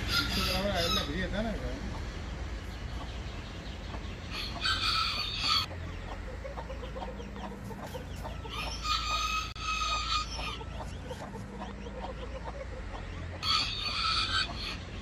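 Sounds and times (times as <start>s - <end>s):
rooster crowing: 0.0s - 1.2s, 4.3s - 5.7s, 8.5s - 10.6s, 13.4s - 15.0s.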